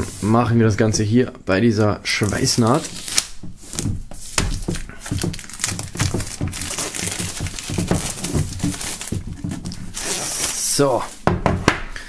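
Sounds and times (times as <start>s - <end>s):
plastic film crinkling: 2.1s - 11.3s.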